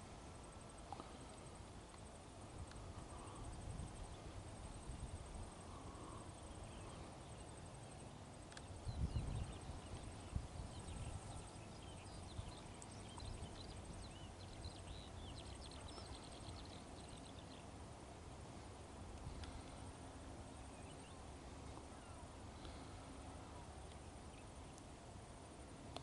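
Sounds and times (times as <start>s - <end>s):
small birds chirping: 2.7s - 17.8s, 19.2s - 24.9s.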